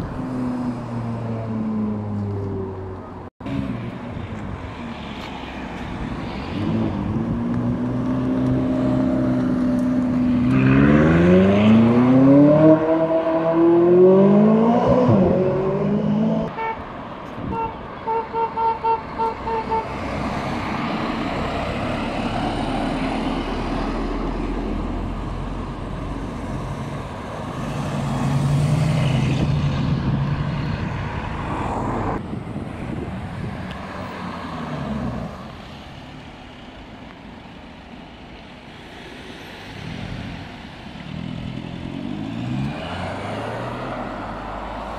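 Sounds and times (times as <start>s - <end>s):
passing traffic: 0.0s - 44.9s
sports car engine accelerating: 6.6s - 16.5s
car horn tooting: 16.5s - 20.0s.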